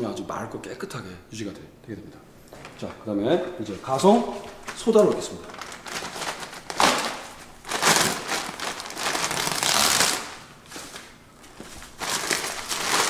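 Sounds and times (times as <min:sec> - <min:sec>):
plastic sack crinkling: 0:03.9 - 0:13.0.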